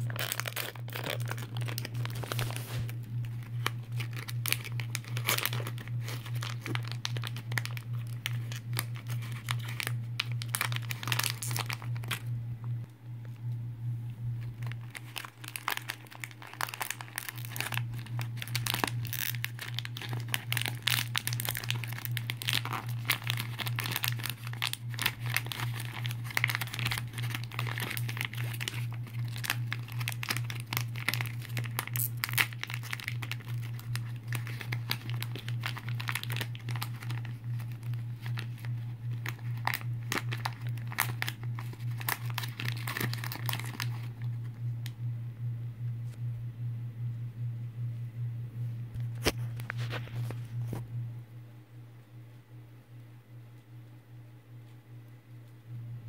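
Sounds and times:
plastic wrapper crinkling: 0:00.0 - 0:12.4, 0:14.4 - 0:44.9, 0:49.0 - 0:50.8
steady low hum: 0:00.0 - 0:56.0.

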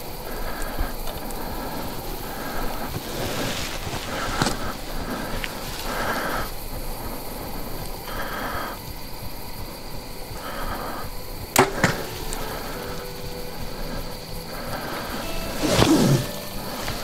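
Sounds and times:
arrow striking target: 0:11.6 - 0:12.9
bowstring snapping with twang: 0:11.6 - 0:13.2.

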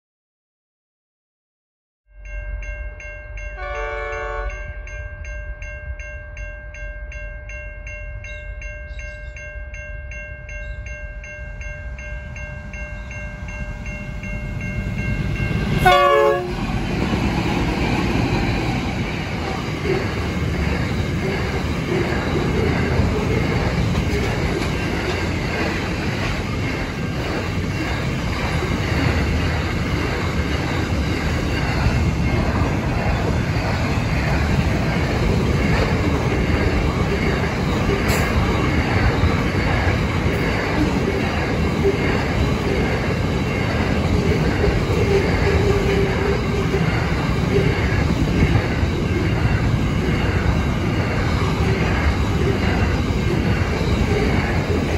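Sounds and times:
level crossing warning bell: 0:02.1 - 0:54.9
train rolling past: 0:02.2 - 0:54.9
train horn: 0:03.6 - 0:04.6, 0:15.8 - 0:16.6.

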